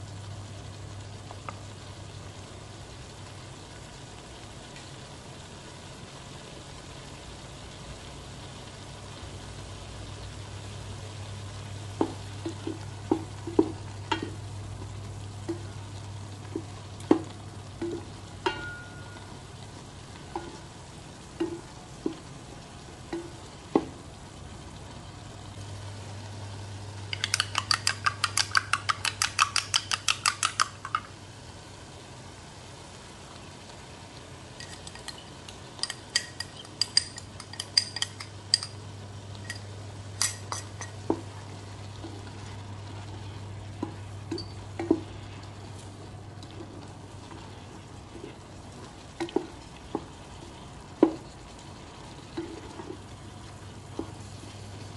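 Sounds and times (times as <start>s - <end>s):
fork beating egg in glass bowl: 27.1s - 31.1s, 35.8s - 38.8s
spatula stirring pasta in metal pot: 27.1s - 31.1s, 39.5s - 54.9s.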